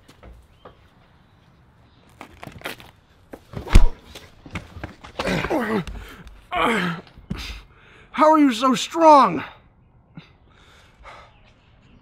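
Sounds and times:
body thumping against a wall: 3.4s - 6.1s
man groaning in pain: 6.5s - 7.1s.

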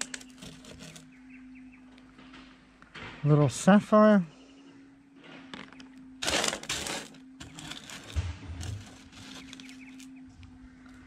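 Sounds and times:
gravel scraping on metal table: 0.0s - 1.1s, 6.2s - 10.1s
faint steady hum: 4.2s - 11.0s.

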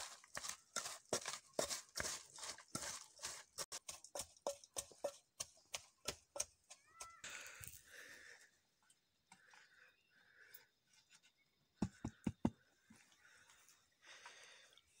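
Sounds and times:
pestle pounding in metal bowl: 3.7s - 6.7s.

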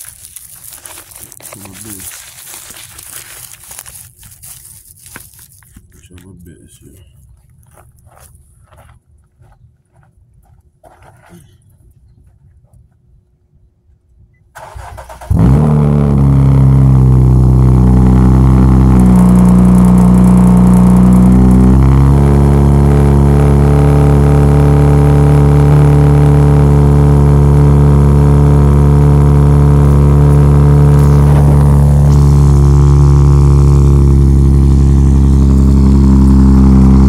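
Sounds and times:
car starter cranking: 14.6s - 15.6s
car engine idling: 14.6s - 37.0s.

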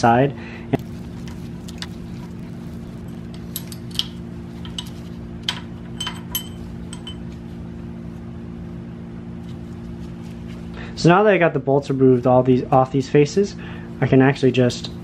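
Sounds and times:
steady low hum: 0.0s - 15.0s
light metallic clinks: 3.3s - 7.4s.

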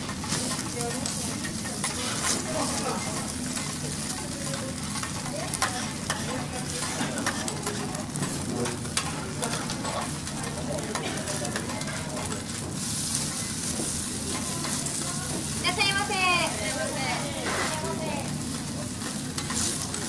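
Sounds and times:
food sizzling on griddle: 0.0s - 20.0s
metal spatulas clicking and scraping: 0.1s - 12.6s, 19.0s - 19.9s.

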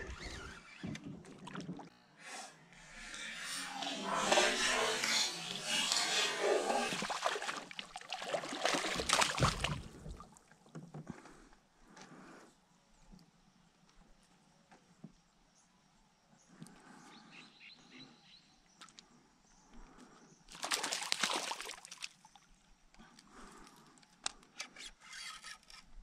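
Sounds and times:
fish splashing in water: 3.8s - 10.5s, 20.5s - 22.3s.

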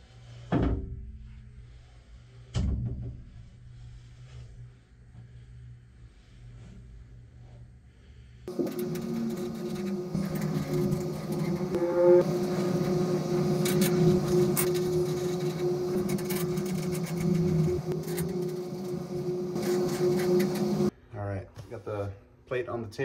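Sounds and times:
steady machine hum: 7.9s - 20.9s
short rising whine: 8.5s - 20.9s.

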